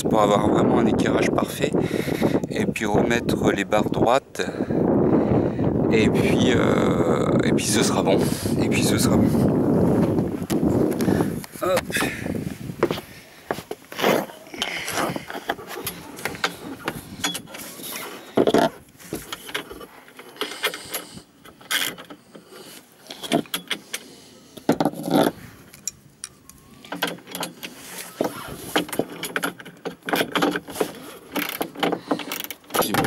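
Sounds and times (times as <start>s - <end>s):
metal tools clinking and scraping: 14.2s - 33.0s.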